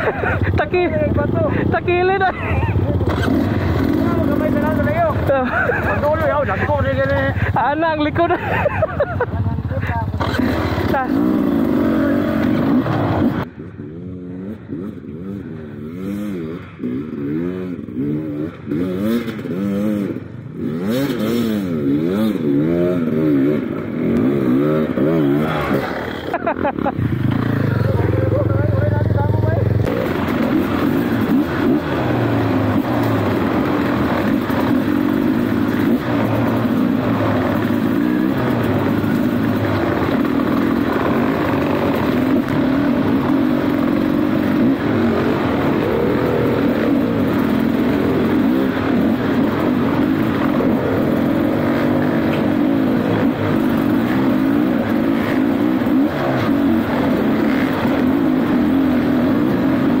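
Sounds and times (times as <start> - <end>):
dirt bike engine revving: 0.0 - 60.0.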